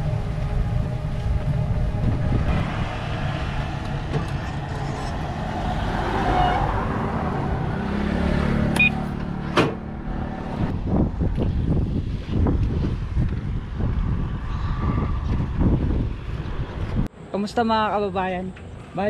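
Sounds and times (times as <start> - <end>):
wind on microphone: 0.0 - 8.1, 10.4 - 17.1
low hum: 0.0 - 17.1
road noise rumble: 0.0 - 19.0.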